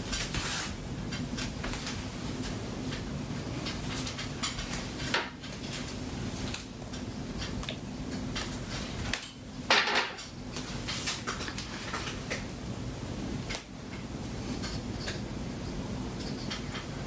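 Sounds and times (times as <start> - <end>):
clattering rustle: 0.0 - 12.5
low steady hum: 0.0 - 17.0.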